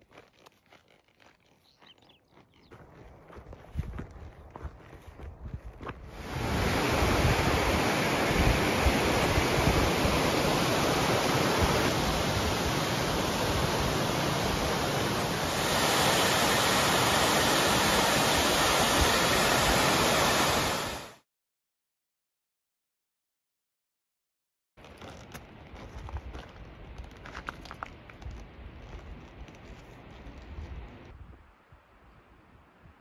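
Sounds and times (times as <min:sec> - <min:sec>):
stream rushing over rocks: 0:06.1 - 0:21.2.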